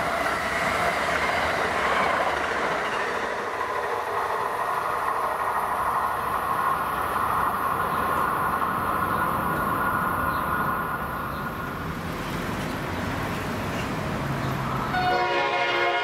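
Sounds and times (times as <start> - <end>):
traffic rumble: 3.2 - 15.0
train air horn chord: 14.9 - 16.0.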